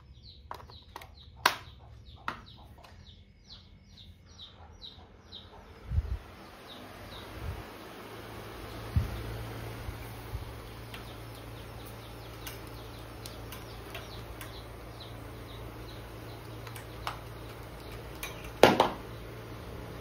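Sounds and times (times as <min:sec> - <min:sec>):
low steady hum: 0:00.0 - 0:20.0
faint high chirps and ticks: 0:10.8 - 0:19.3.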